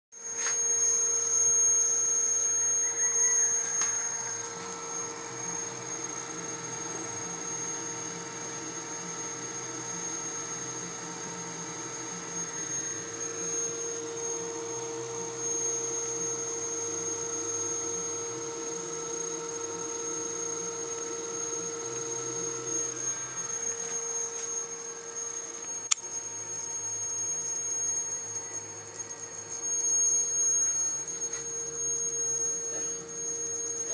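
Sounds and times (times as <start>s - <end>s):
power inverter humming and whining: 0.2s - 33.9s
sharp click: 25.8s - 26.2s.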